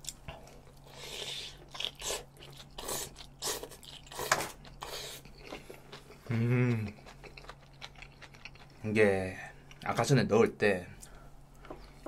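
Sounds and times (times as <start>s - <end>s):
crunchy chewing: 0.0s - 8.8s.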